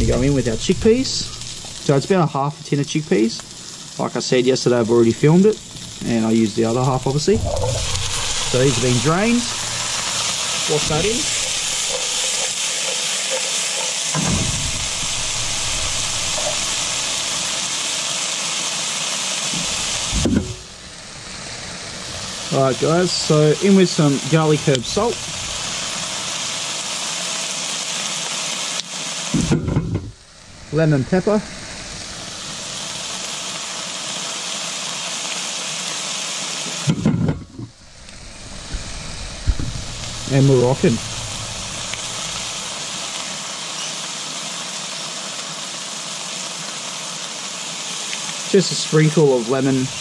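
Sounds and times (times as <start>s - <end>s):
person speaking: 0.0s - 12.4s, 30.7s - 31.5s, 40.3s - 41.1s
vegetables sizzling in a frying pan: 0.0s - 50.0s
low thump: 14.1s - 17.0s, 19.6s - 20.6s.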